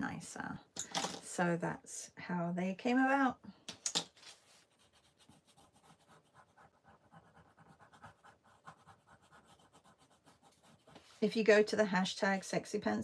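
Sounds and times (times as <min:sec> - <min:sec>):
pencil scratching on paper: 0:04.3 - 0:11.3.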